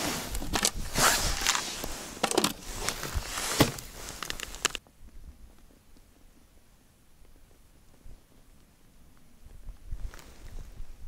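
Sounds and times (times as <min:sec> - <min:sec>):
crunching on snowy ice: 0:00.0 - 0:04.8
plastic bucket lid clicking: 0:02.2 - 0:02.6.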